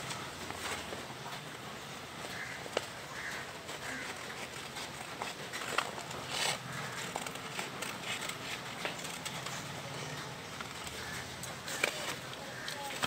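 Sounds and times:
paper rustling: 0.0s - 13.0s
scissors snipping paper: 2.3s - 13.0s.

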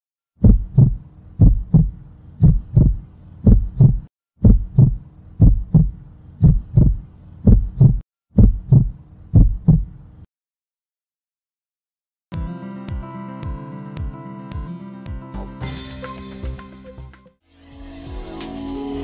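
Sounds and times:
heartbeat thumps: 0.4s - 10.0s.

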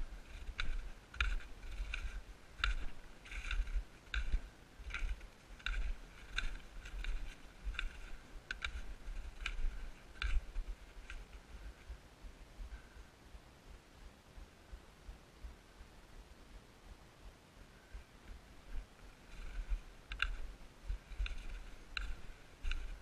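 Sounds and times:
footsteps crunching in snow: 0.0s - 12.0s, 18.6s - 23.0s
low microphone rumble: 0.0s - 23.0s.

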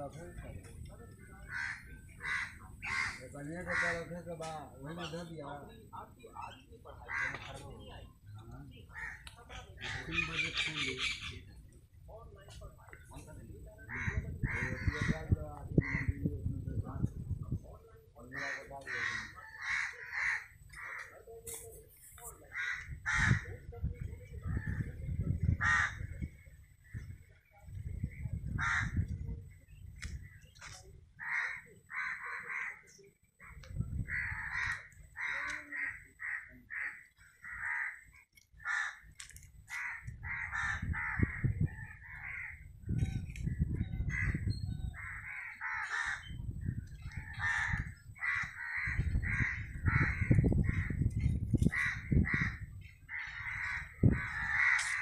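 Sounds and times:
harsh bird calls: 8.7s - 11.6s, 39.8s - 55.0s.

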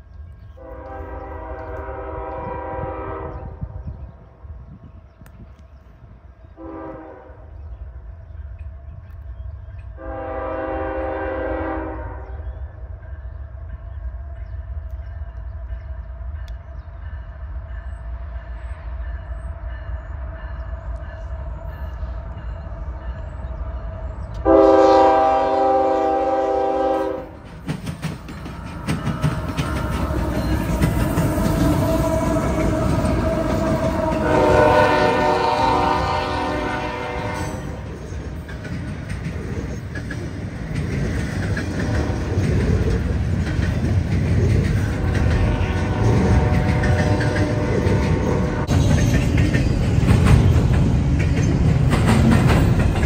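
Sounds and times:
train engines rumbling: 0.0s - 53.0s
locomotive horn blasts: 0.6s - 3.8s, 6.6s - 7.6s, 10.0s - 12.4s, 24.4s - 27.4s, 31.6s - 37.8s, 45.0s - 48.7s
wheels clattering over rail joints: 27.4s - 34.3s, 37.7s - 53.0s.

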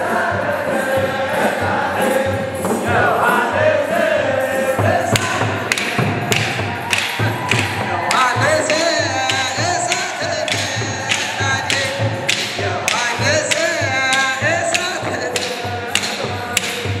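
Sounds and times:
group of voices chanting: 0.0s - 17.0s
low thumping beat: 0.0s - 17.0s
hands clapping: 5.2s - 17.0s.

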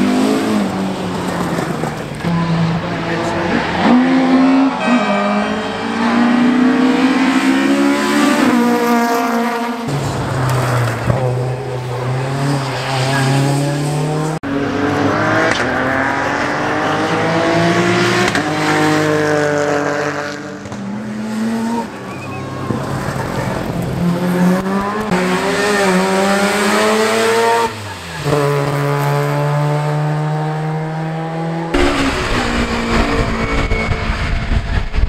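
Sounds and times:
rally car engine at full throttle: 0.0s - 35.0s.

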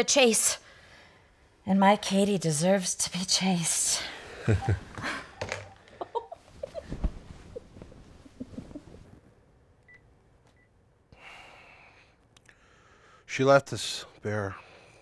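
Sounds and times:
bedcovers rustling: 6.4s - 9.4s.

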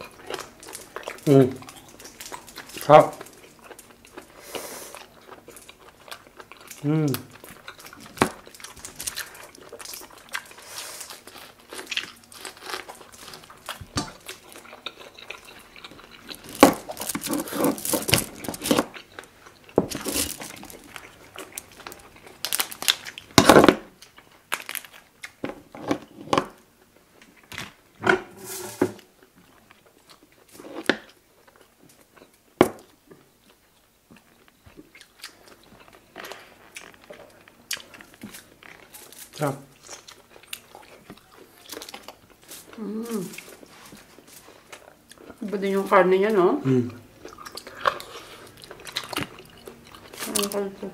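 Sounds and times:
chewing and biting: 0.0s - 23.3s, 47.2s - 50.6s.

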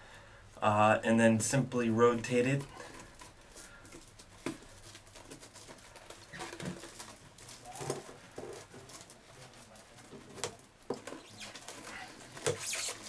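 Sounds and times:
plastic and fabric rubbing: 2.6s - 13.0s.

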